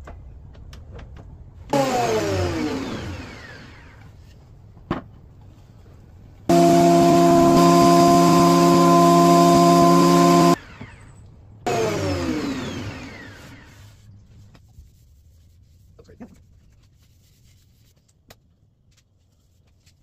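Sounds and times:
thickness planer whining: 0:01.7 - 0:04.1, 0:06.5 - 0:11.0, 0:11.7 - 0:14.0.

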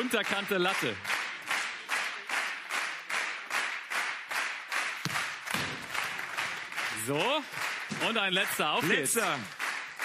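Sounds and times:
audience clapping in unison: 0:00.0 - 0:10.0.

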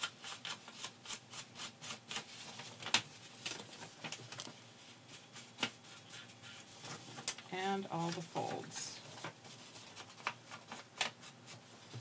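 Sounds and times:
paper rustling: 0:00.0 - 0:12.0
brush scraping on paper: 0:04.8 - 0:07.1.

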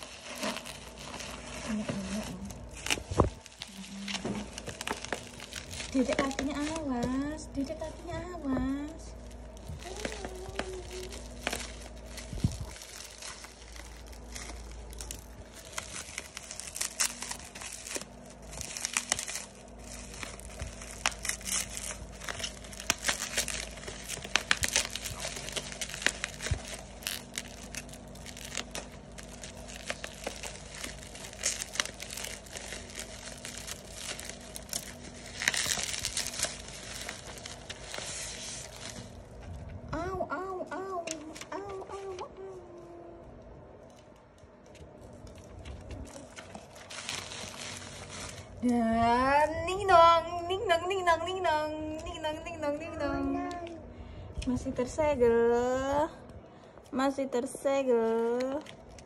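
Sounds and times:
scissors cutting plastic: 0:00.0 - 0:07.2, 0:09.6 - 0:39.1
bubble wrap crinkling: 0:00.0 - 0:55.0, 0:57.8 - 0:59.0.

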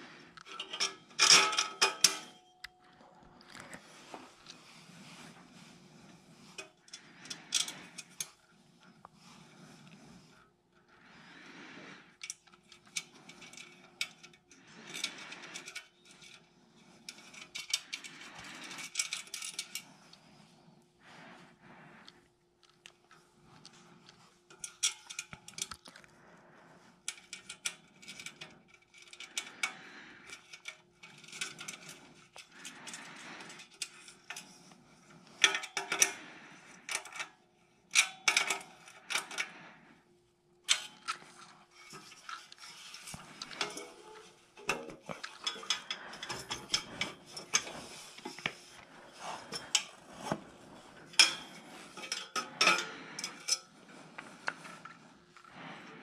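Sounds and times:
metal parts clinking and tapping: 0:00.4 - 0:02.8, 0:12.2 - 0:16.5, 0:17.1 - 0:19.9, 0:24.5 - 0:26.0, 0:27.1 - 0:34.6, 0:35.3 - 0:37.3, 0:37.9 - 0:39.5, 0:40.6 - 0:48.8, 0:51.0 - 0:53.7.

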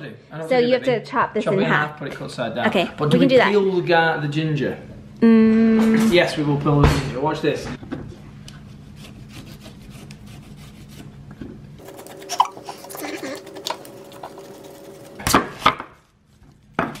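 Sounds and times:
peeler scraping ginger skin: 0:08.7 - 0:11.1, 0:11.8 - 0:16.7.

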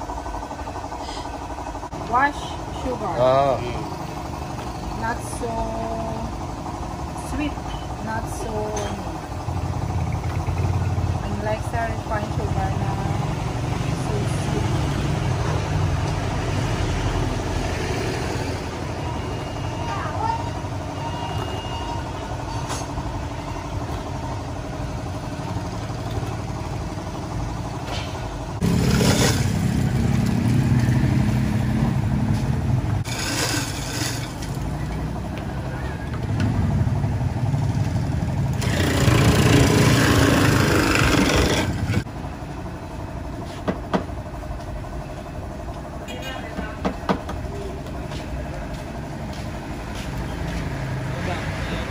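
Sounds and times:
ice grinding against blade: 0:28.6 - 0:29.5, 0:33.0 - 0:34.5, 0:38.6 - 0:42.0
ice shaver motor hum: 0:33.0 - 0:34.7, 0:38.4 - 0:42.1.

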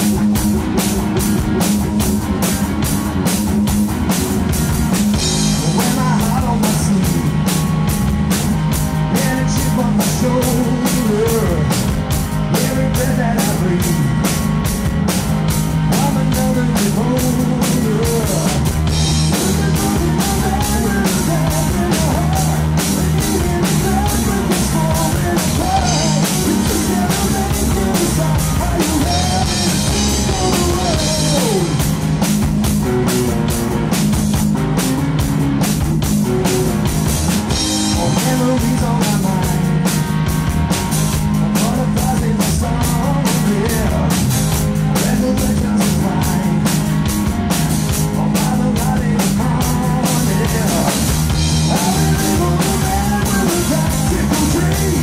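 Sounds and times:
bass guitar: 0:00.0 - 0:55.0
drum kit beat: 0:00.0 - 0:55.0
electric guitar: 0:00.0 - 0:55.0
man singing lead vocal: 0:05.4 - 0:07.7, 0:08.3 - 0:14.4, 0:15.8 - 0:32.0, 0:37.5 - 0:40.1, 0:41.4 - 0:46.9, 0:47.9 - 0:55.0.

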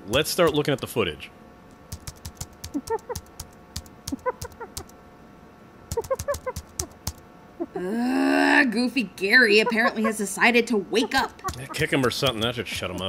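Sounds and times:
computer keyboard typing: 0:01.8 - 0:04.9, 0:05.9 - 0:07.2, 0:11.2 - 0:13.0
squeaky chirps: 0:02.7 - 0:03.5, 0:04.1 - 0:04.9, 0:05.9 - 0:07.8.

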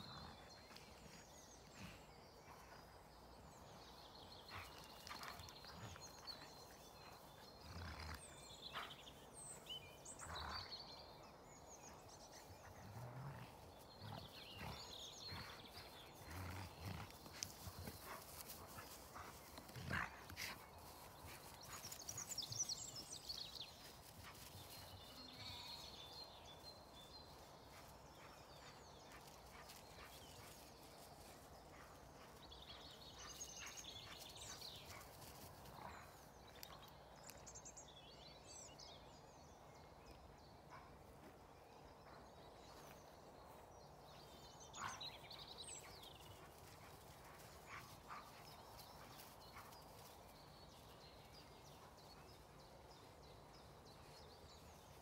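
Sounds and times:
birds chirping faintly: 0:00.0 - 0:55.0
dogs growling: 0:12.6 - 0:18.2, 0:19.2 - 0:20.6.

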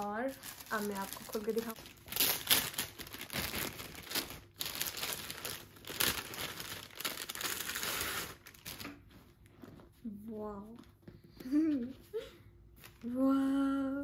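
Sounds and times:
plastic packaging crinkling: 0:00.0 - 0:09.2.

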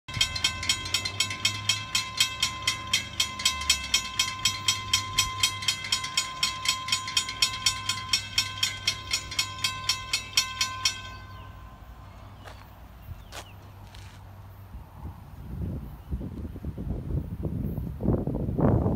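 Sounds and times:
railroad crossing bell ringing: 0:00.1 - 0:13.1.

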